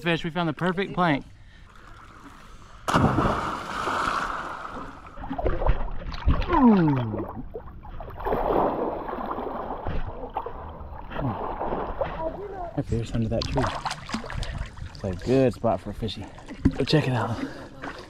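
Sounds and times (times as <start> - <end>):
water sloshing and gurgling: 1.0 - 18.0
person splashing into water: 2.9 - 7.4, 8.2 - 12.2.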